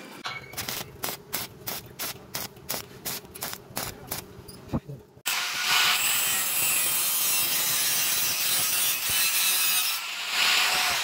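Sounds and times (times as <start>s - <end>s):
angle grinder cutting steel: 5.3s - 11.0s.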